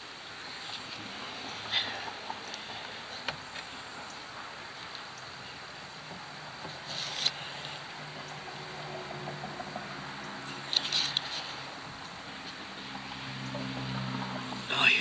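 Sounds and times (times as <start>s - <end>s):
scraping rustle: 6.6s - 7.8s, 10.6s - 11.7s.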